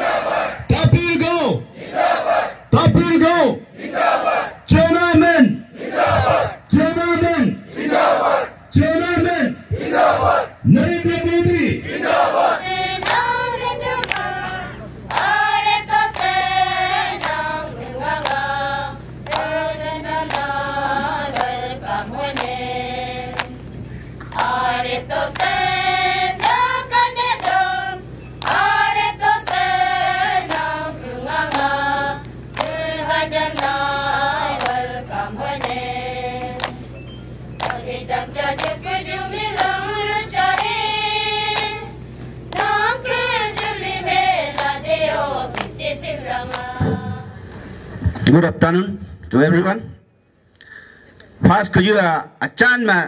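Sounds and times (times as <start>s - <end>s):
women singing together: 12.0s - 23.6s, 24.3s - 37.0s, 37.6s - 47.4s
steady handclaps: 13.0s - 13.3s, 14.0s - 14.3s, 15.1s - 15.4s, 16.1s - 16.6s, 17.2s - 17.5s, 18.2s - 18.4s, 19.2s - 22.6s, 23.3s - 23.6s, 24.2s - 24.6s, 25.3s - 25.6s, 26.3s - 26.7s, 27.3s - 27.7s, 28.4s - 28.8s, 29.4s - 30.8s, 31.4s - 31.8s, 32.5s - 33.8s, 34.4s - 34.9s, 35.5s - 36.8s, 37.6s - 37.9s, 38.5s - 38.9s, 39.5s - 40.8s, 41.5s - 43.8s, 44.4s - 45.8s, 46.5s - 46.8s.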